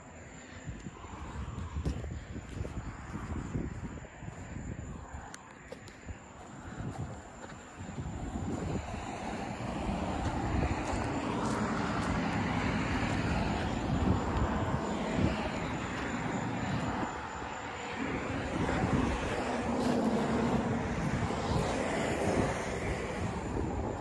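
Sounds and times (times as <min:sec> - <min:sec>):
large diesel engine running: 0:08.0 - 0:24.0.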